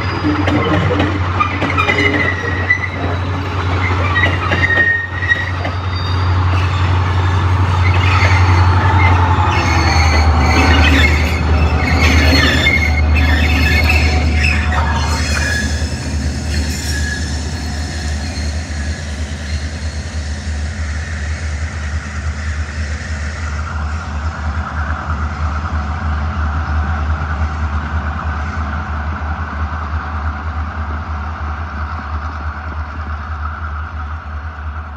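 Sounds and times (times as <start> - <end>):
train wheels squealing: 0.0 - 25.6
diesel locomotive engine rumble: 0.0 - 34.9.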